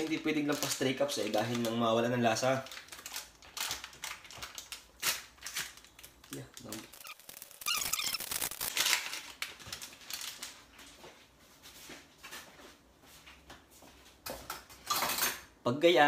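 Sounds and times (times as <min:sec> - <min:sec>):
packet rustling and crinkling: 0:00.0 - 0:11.0.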